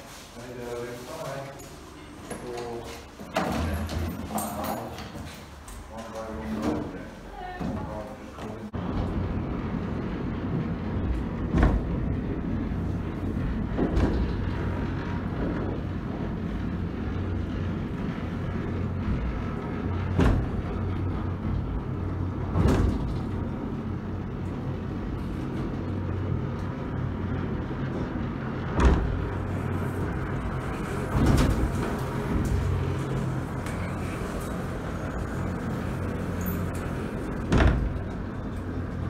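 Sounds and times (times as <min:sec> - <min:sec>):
funicular car humming: 0:00.0 - 0:39.0
heavy clunks: 0:20.0 - 0:23.5, 0:28.7 - 0:29.9, 0:36.6 - 0:38.4.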